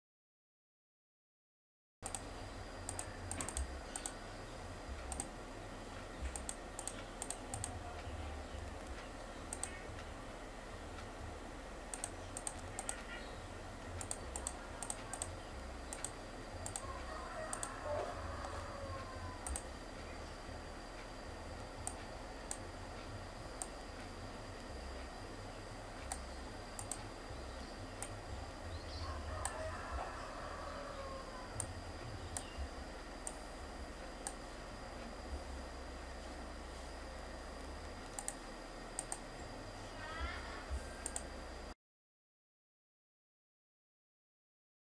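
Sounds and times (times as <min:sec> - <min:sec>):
computer mouse clicking: 0:02.0 - 0:04.2, 0:05.0 - 0:05.4, 0:06.0 - 0:10.2, 0:11.9 - 0:13.2, 0:13.9 - 0:20.1, 0:21.8 - 0:25.2, 0:26.0 - 0:27.2, 0:28.0 - 0:29.6, 0:31.6 - 0:32.6, 0:33.2 - 0:33.5, 0:34.1 - 0:34.4, 0:37.6 - 0:39.3, 0:41.0 - 0:41.3
steady low hum: 0:02.0 - 0:41.8.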